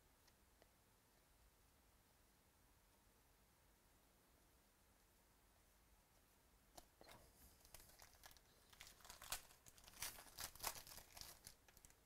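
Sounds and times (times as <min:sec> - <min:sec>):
foil wrapper crinkling and tearing: 0:07.6 - 0:12.0.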